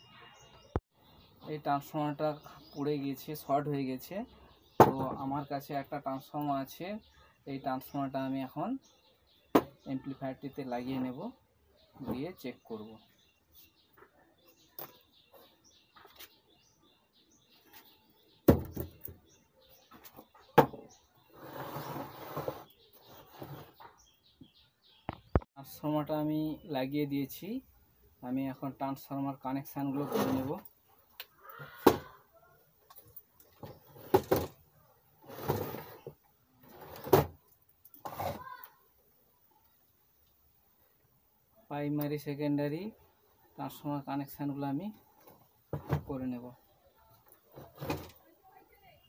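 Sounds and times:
knocks on wooden workbench: 9.5 - 9.7, 18.5 - 19.0, 20.6 - 20.9
scraping and rustling: 21.2 - 24.0, 35.2 - 38.7, 47.3 - 48.2.

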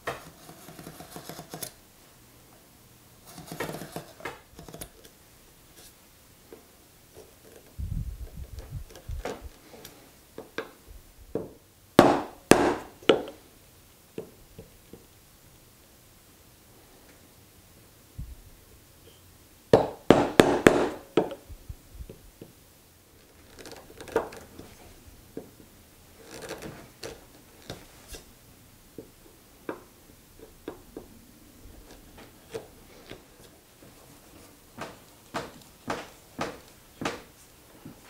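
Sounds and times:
chisel paring wood: 0.0 - 1.7, 12.0 - 13.4, 19.8 - 21.4, 34.8 - 37.4.

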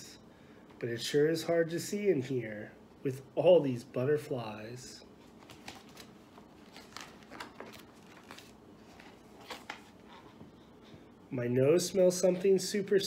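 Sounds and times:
paper page rustling: 5.2 - 10.4.

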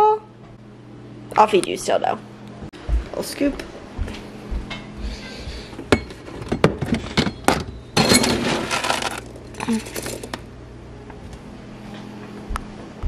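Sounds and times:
kibble rattling into bowl: 8.0 - 10.3.

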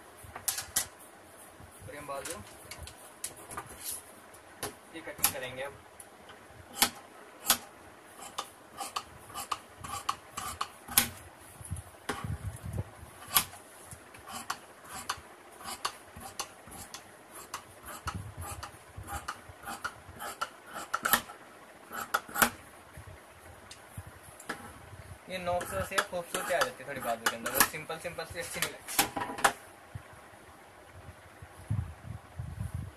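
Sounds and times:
shears snipping fabric: 6.7 - 11.2, 13.2 - 13.6, 14.2 - 22.6, 25.6 - 29.1.

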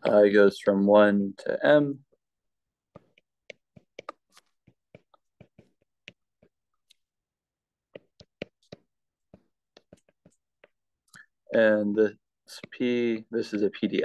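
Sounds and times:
stylus tapping on glass screen: 2.9 - 6.6, 7.9 - 10.8.

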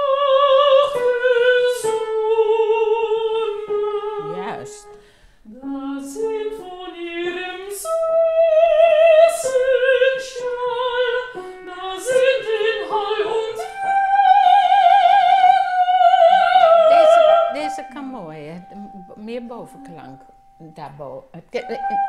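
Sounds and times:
woman singing operatically: 5.5 - 20.2, 21.2 - 22.0.

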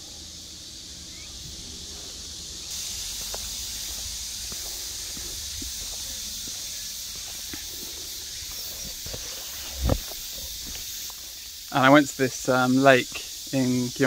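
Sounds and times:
insects droning: 0.0 - 14.0
footsteps on paved path: 1.9 - 11.5.

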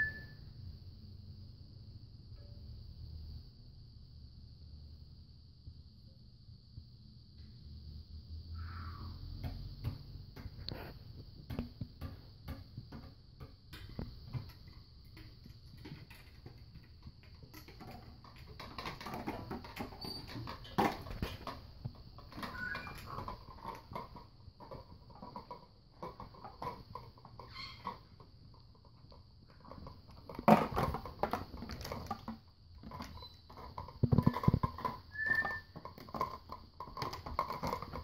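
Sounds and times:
toys knocking and rattling: 9.2 - 38.0.

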